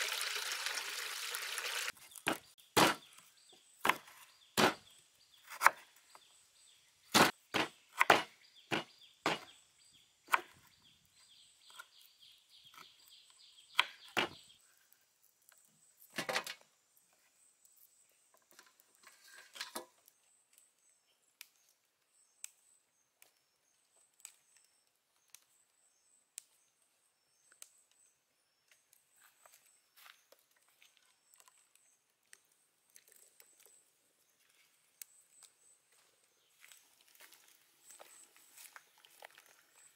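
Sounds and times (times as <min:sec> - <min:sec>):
knife chopping on wooden board: 0:02.3 - 0:03.0, 0:03.8 - 0:04.8, 0:07.1 - 0:09.5.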